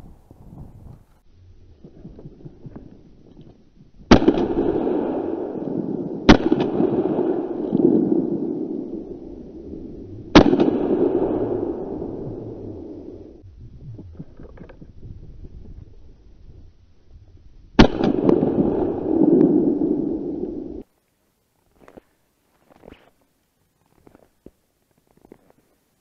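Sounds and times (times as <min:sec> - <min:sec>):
shotgun shots with echo: 0:04.1 - 0:08.4, 0:10.4 - 0:12.0, 0:17.8 - 0:19.9
faint rustling: 0:20.8 - 0:25.9.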